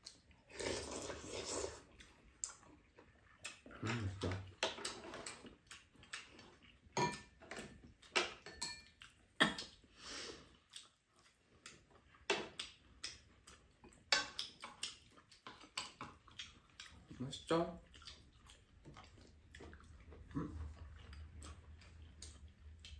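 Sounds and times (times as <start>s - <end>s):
utensils clinking on pan and bowls: 7.0s - 8.9s.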